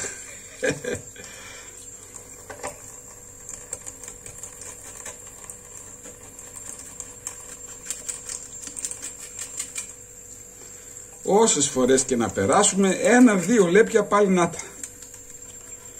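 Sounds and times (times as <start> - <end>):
scaler scraping fish scales: 4.4 - 10.1.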